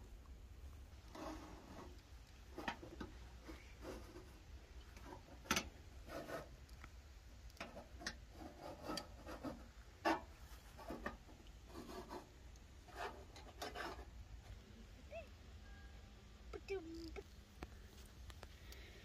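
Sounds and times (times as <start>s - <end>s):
skewers scraping on metal: 1.1s - 4.4s, 5.0s - 6.6s, 7.6s - 14.1s.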